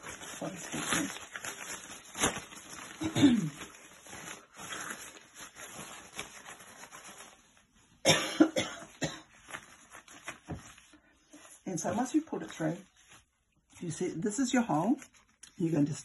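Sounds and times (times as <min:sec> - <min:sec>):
woman coughing: 0:03.0 - 0:03.6, 0:08.0 - 0:09.3.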